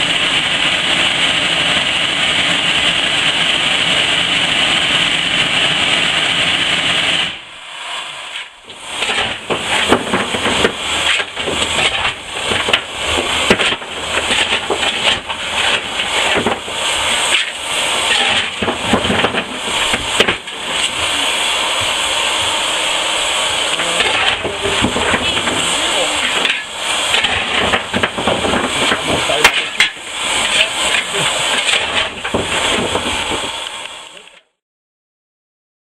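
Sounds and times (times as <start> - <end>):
steam hissing: 0.0 - 34.4
metallic clanks and scrapes: 8.3 - 21.0, 23.7 - 33.6.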